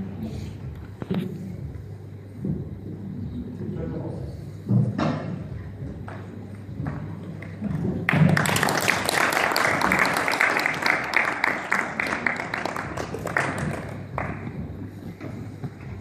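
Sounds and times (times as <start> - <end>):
audience applauding: 8.1 - 14.5.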